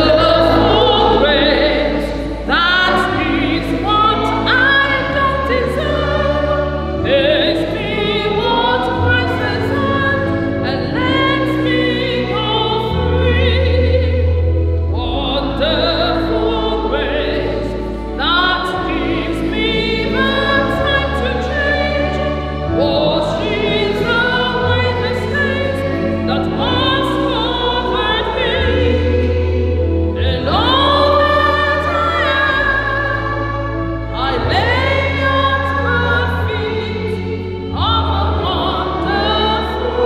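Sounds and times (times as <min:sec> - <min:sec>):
held accompanying chords: 0:00.0 - 0:40.0
voices singing church music: 0:00.0 - 0:40.0.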